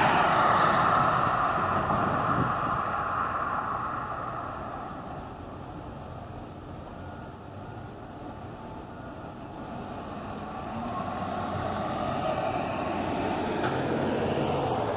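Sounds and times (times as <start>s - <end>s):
pickup truck driving past: 0.0s - 6.4s, 9.5s - 14.9s.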